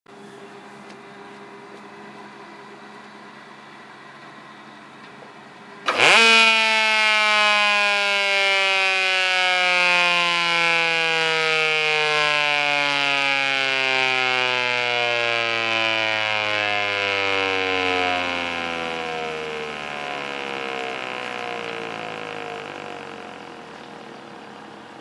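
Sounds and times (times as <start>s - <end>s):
siren wail: 5.9s - 24.3s.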